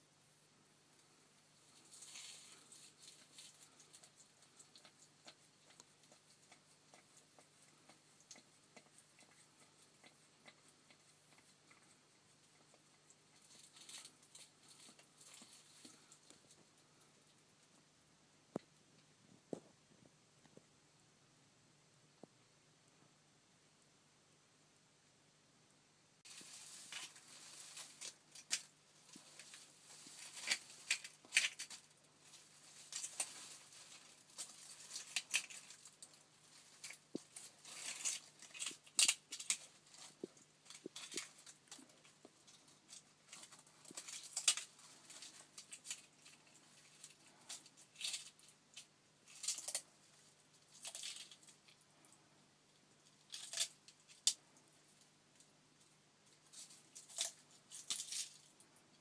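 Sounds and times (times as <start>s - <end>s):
dry leaves crackling: 26.3s - 41.9s
lizard crunching eggshell: 26.4s - 51.8s, 53.0s - 54.4s.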